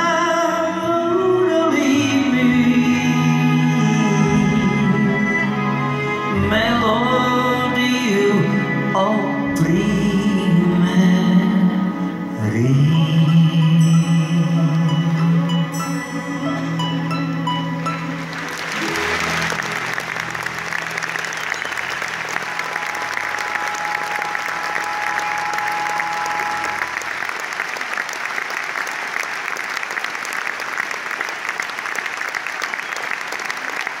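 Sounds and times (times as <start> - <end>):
orchestra and guitar: 0.0 - 27.8
audience applauding: 17.8 - 34.0
low held tones: 21.5 - 27.1.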